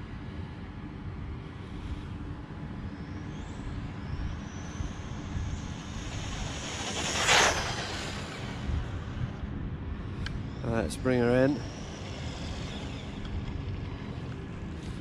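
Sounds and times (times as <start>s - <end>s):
electric motor whining: 4.0s - 9.2s, 10.5s - 15.0s
loud rush of noise: 4.9s - 9.4s.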